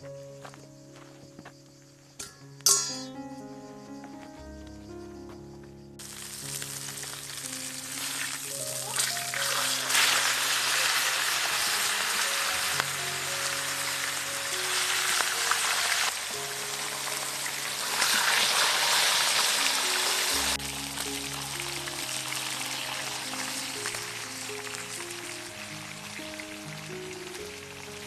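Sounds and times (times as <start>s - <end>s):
background music: 0.0s - 28.0s
fish sizzling in oil: 6.0s - 28.0s.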